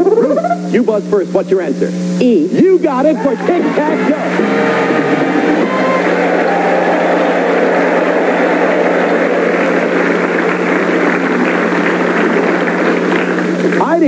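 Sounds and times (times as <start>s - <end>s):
constant low hum: 0.0s - 14.0s
audience applauding: 3.0s - 14.0s.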